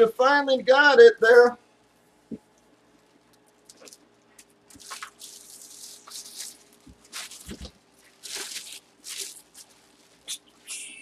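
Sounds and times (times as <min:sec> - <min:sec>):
plastic bag crinkling: 0:02.9 - 0:10.7.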